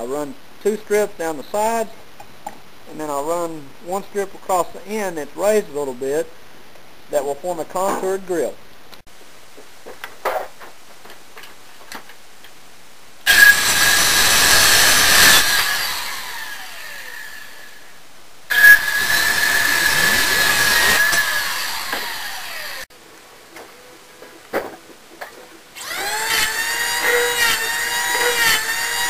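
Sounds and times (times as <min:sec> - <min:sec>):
power tool whining on wood: 0:13.3 - 0:17.7, 0:18.5 - 0:22.9, 0:25.8 - 0:29.0.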